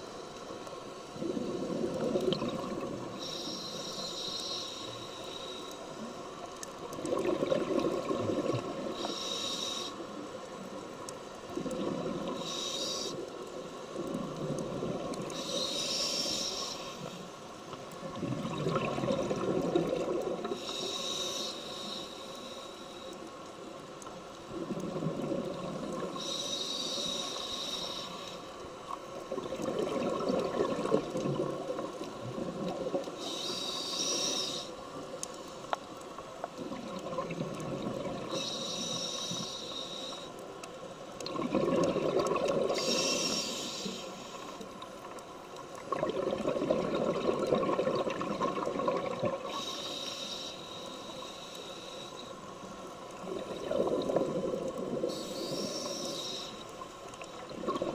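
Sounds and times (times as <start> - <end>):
regulator hissing inhalations: 3.2 - 6.2, 8.9 - 10.3, 12.4 - 13.4, 15.3 - 17.4, 20.5 - 23.2, 26.1 - 28.6, 33.2 - 34.9, 38.3 - 40.5, 42.7 - 44.6, 49.4 - 52.5, 55.0 - 56.8
bubbling exhalations: 41.3 - 42.9, 45.9 - 49.4.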